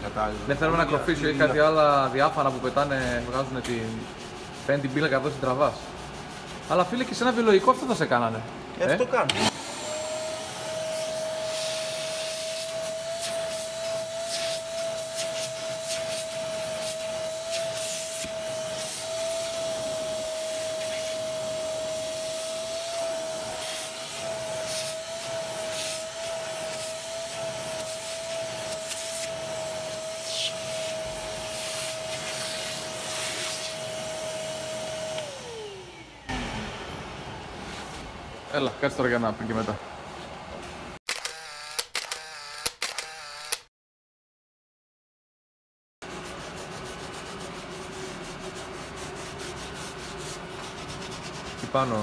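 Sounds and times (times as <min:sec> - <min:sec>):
vacuum cleaner running: 0:09.2 - 0:39.7
vacuum motor spinning down: 0:09.3 - 0:11.2, 0:33.7 - 0:37.6.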